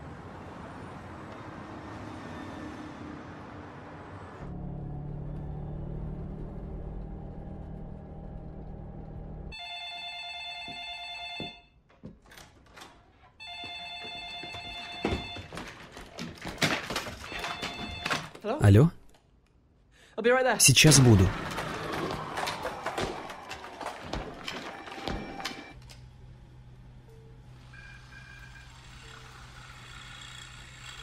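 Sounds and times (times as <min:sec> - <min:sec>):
telephone ringing: 0:09.5 - 0:11.8, 0:13.4 - 0:15.8, 0:17.2 - 0:18.8, 0:24.4 - 0:25.8
knocks and clatter: 0:11.4 - 0:18.4, 0:21.3 - 0:25.8.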